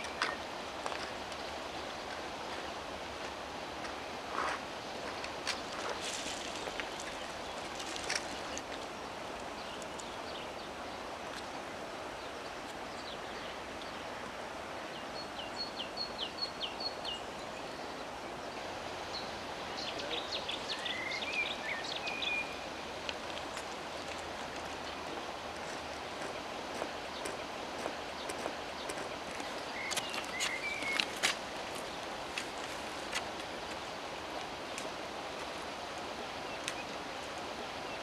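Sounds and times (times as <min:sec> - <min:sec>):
birds chirping: 0:05.0 - 0:34.0, 0:35.7 - 0:38.0
steady outdoor rushing noise: 0:18.0 - 0:38.0.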